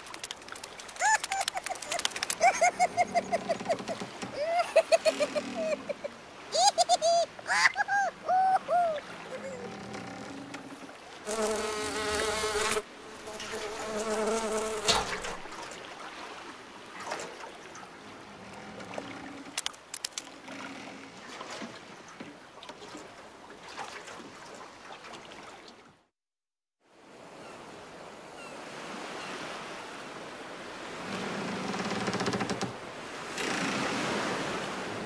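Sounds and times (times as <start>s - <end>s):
sharp ticks: 0.0s - 2.4s
insect buzzing: 11.3s - 15.5s.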